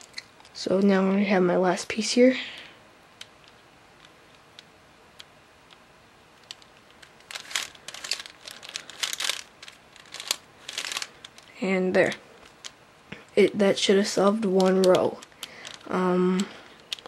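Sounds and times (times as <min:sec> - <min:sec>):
puzzle cube turning clicks: 0:03.2 - 0:05.8, 0:06.4 - 0:12.8, 0:13.9 - 0:17.0.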